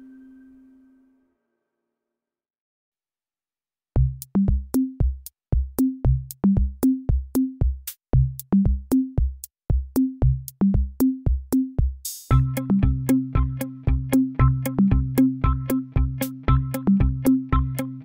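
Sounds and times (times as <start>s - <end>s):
electronic music with drum beat: 4.0s - 18.0s
low bass line: 12.3s - 18.0s.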